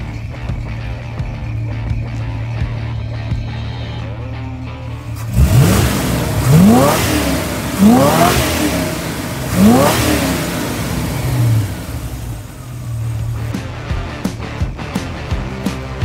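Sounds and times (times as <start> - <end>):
car engine idling and revving: 0.0 - 16.0.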